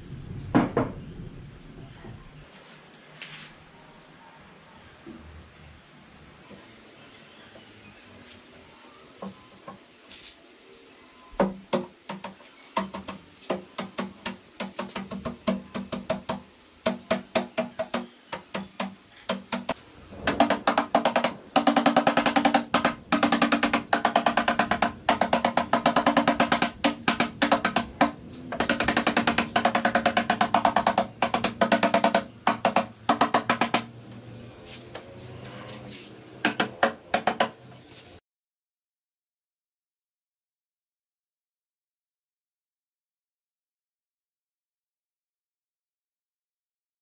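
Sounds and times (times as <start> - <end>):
rubber mallet tapping wooden box: 11.4 - 34.0, 36.4 - 37.6.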